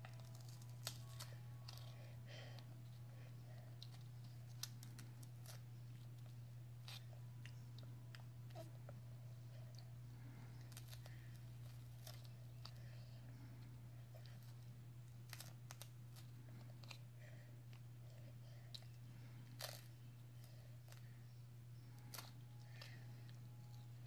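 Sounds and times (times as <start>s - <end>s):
baby gumming a teething wafer: 0.0s - 24.0s
steady low hum: 0.0s - 24.0s.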